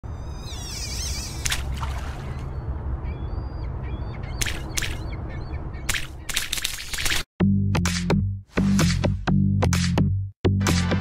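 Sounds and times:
birds warbling and chirping: 0.2s - 6.6s.

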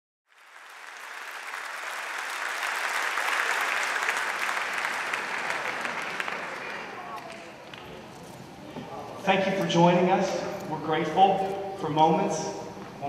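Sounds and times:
crowd applauding: 0.3s - 8.0s.

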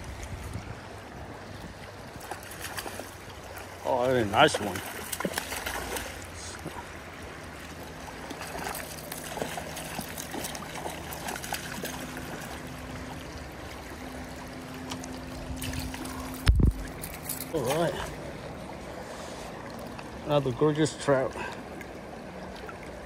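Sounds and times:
river current rushing: 0.0s - 23.0s
fish splashing at surface: 4.5s - 6.5s.

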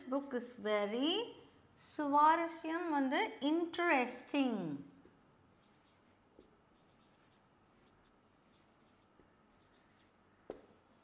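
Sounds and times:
marker writing on whiteboard: 5.0s - 11.0s
marker tapping board: 10.5s - 10.8s.

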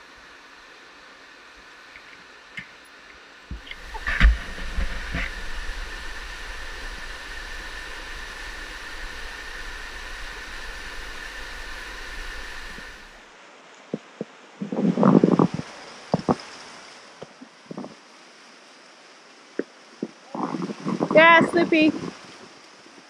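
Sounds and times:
faint high whine: 0.0s - 13.3s
wind rumbling on microphone: 3.5s - 13.2s, 13.9s - 18.1s, 19.6s - 23.0s.

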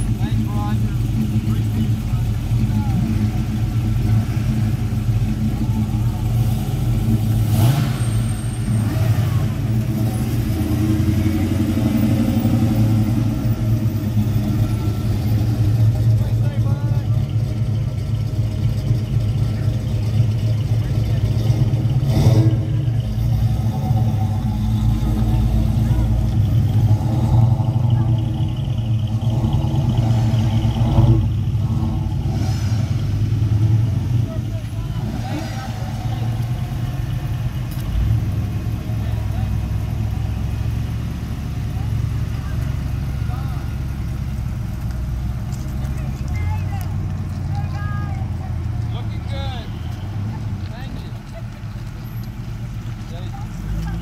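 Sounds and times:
engine revving: 0.0s - 49.6s
car engines rumbling: 0.0s - 54.0s.

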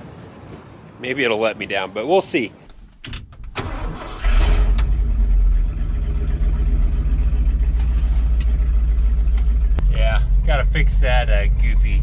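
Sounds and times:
engine starting and idling: 3.2s - 9.8s.

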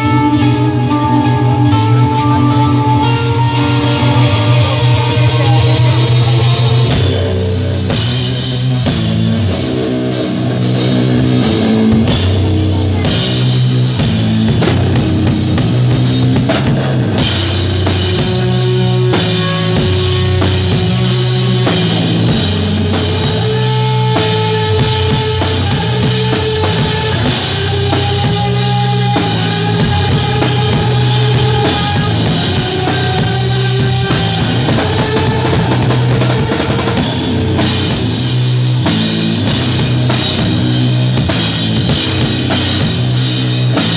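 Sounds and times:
drum kit beat with cymbals: 0.0s - 43.9s
rock band playing loud: 0.0s - 43.9s.

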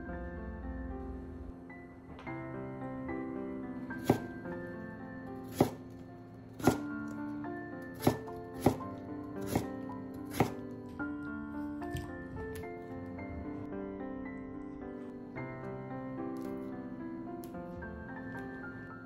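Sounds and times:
background music: 0.0s - 19.0s
knife chopping on wooden board: 4.0s - 4.4s, 5.5s - 5.9s, 6.6s - 6.9s, 8.0s - 10.7s.

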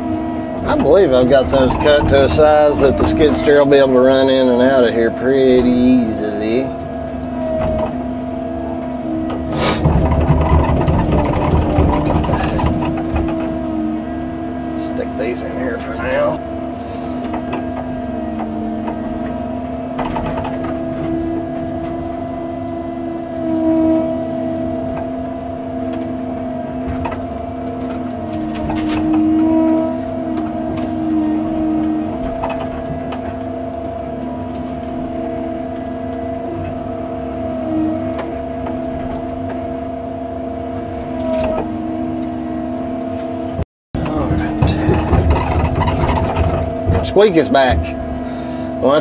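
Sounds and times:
excavator engine and hydraulics whine: 0.0s - 49.0s
metal knocks: 9.2s - 13.9s, 44.0s - 48.2s.

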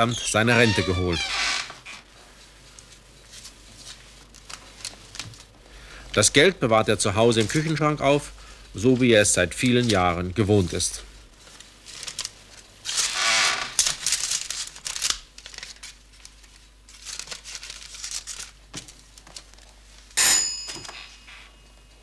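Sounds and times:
paper rustling and crinkling: 2.7s - 5.5s, 7.3s - 7.8s, 8.8s - 20.0s
sharp knock with high ring: 20.2s - 21.4s.

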